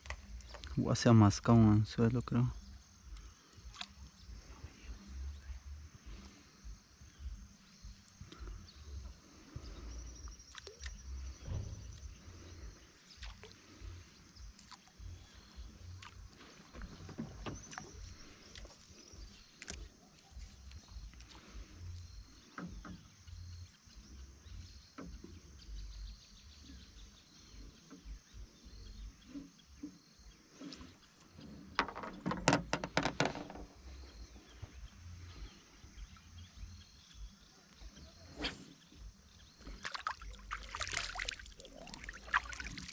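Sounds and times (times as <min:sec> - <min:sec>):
handling plastic float: 0:08.0 - 0:23.0, 0:30.5 - 0:36.7, 0:39.6 - 0:42.9.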